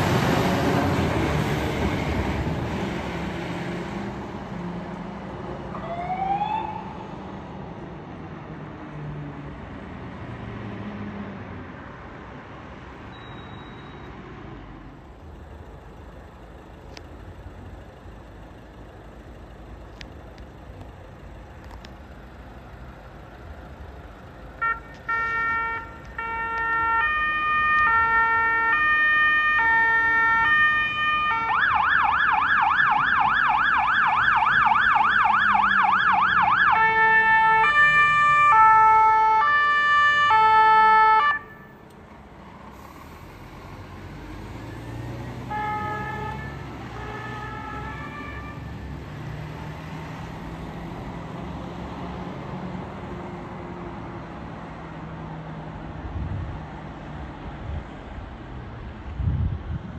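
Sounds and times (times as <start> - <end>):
fire engine driving: 0.0 - 59.9
fire engine siren: 5.7 - 7.3, 24.6 - 41.8, 42.7 - 54.0.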